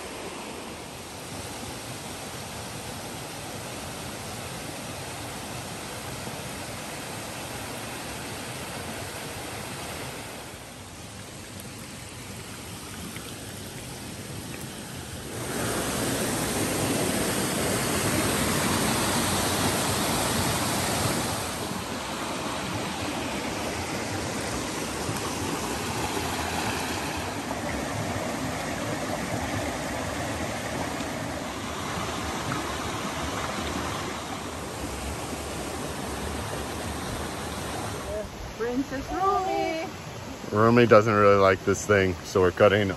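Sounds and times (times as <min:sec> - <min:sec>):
stream rushing over rocks: 0:00.0 - 0:42.9.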